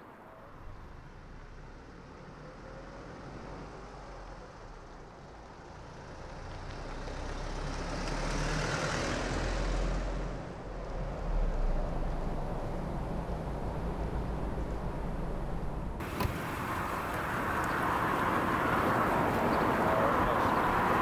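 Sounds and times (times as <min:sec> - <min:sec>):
car driving past: 0:06.3 - 0:13.2
low engine rumble: 0:10.8 - 0:21.0.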